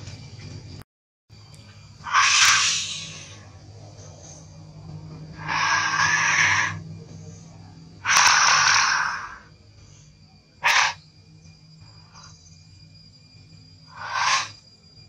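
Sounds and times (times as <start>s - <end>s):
macaque harsh breathy calls: 2.0s - 4.6s, 5.2s - 9.5s, 10.6s - 11.1s, 11.8s - 12.5s, 13.9s - 14.6s.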